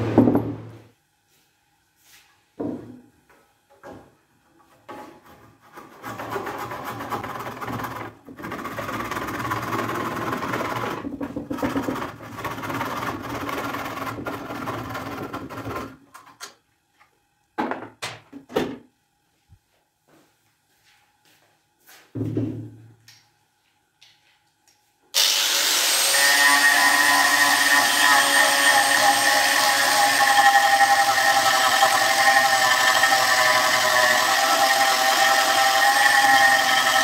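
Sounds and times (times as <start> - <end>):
handsaw rasping through wood: 5.6 - 15.9, 25.3 - 37.0.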